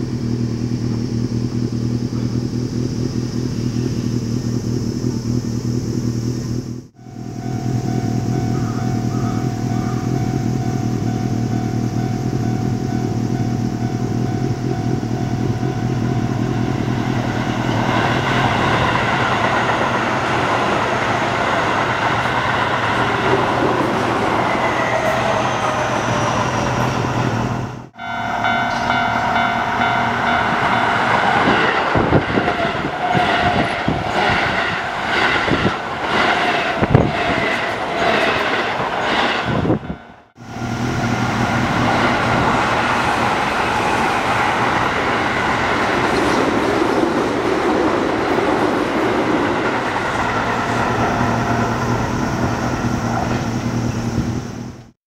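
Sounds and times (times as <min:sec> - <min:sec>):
electric train running past: 0:00.0 - 0:55.0
level crossing alarm bells: 0:07.0 - 0:17.8, 0:27.9 - 0:34.2.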